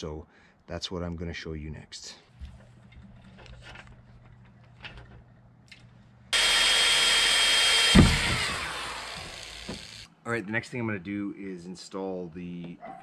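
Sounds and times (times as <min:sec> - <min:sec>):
power drill boring into plastic: 0:06.4 - 0:10.1
loud knock: 0:07.8 - 0:09.9.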